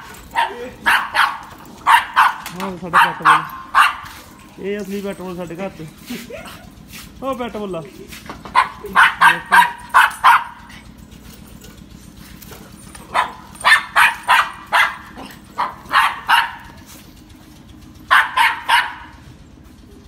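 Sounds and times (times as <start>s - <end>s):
small dog barking: 0.2s - 4.5s, 8.5s - 10.8s, 13.0s - 16.9s, 18.1s - 19.2s.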